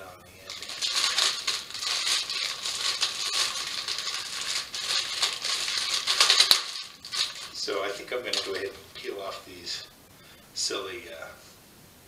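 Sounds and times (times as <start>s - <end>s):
plastic wrap crinkling: 0.5s - 9.7s.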